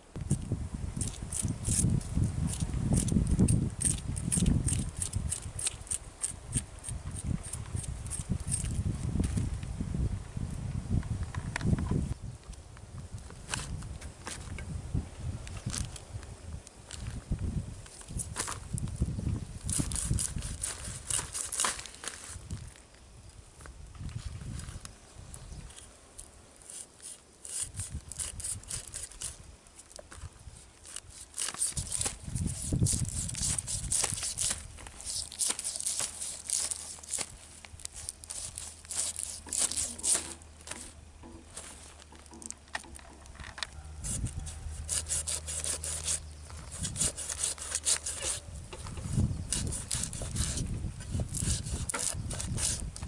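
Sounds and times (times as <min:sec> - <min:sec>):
knife scraping fish scales: 0:01.0 - 0:08.8, 0:19.6 - 0:22.3, 0:26.6 - 0:29.9, 0:30.6 - 0:41.0, 0:44.0 - 0:52.9.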